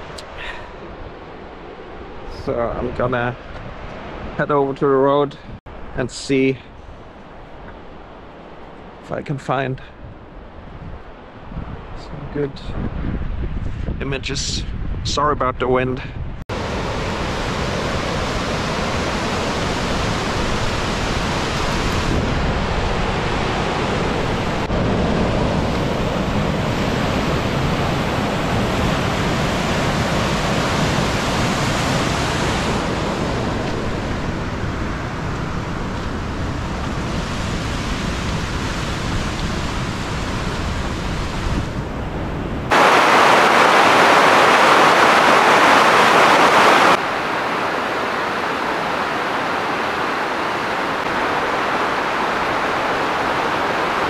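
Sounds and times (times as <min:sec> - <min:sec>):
river rapids rushing over rocks: 0:42.7 - 0:54.0.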